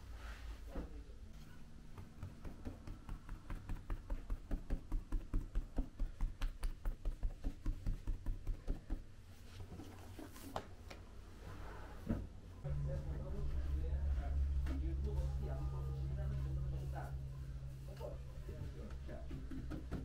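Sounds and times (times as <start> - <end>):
bread docker knocking on dough: 1.9 - 9.0.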